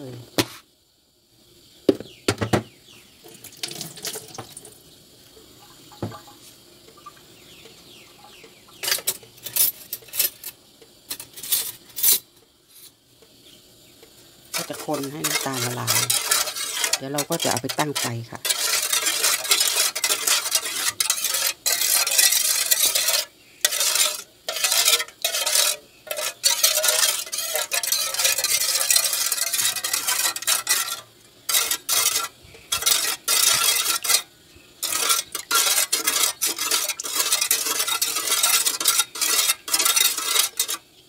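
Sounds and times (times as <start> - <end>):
metal spoon scraping a steel bowl: 8.8 - 12.9, 14.6 - 40.8.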